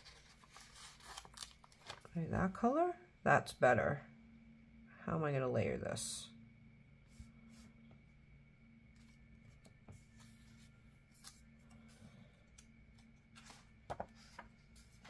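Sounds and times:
paper rustling: 0:00.0 - 0:02.2, 0:09.0 - 0:15.0
low steady hum: 0:00.0 - 0:15.0.

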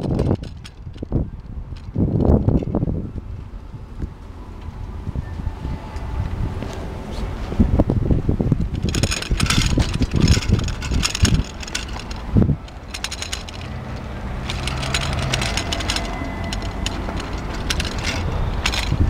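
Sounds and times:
bicycle rattling over paving: 0:00.0 - 0:02.7, 0:08.6 - 0:19.0
wire basket clattering: 0:08.7 - 0:19.0.

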